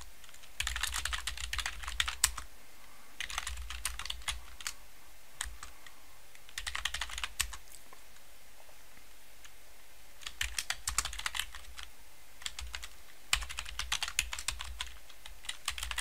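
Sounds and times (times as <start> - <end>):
computer keyboard typing: 0.2 - 2.4, 3.2 - 4.8, 5.4 - 5.7, 6.5 - 7.6, 10.2 - 16.0.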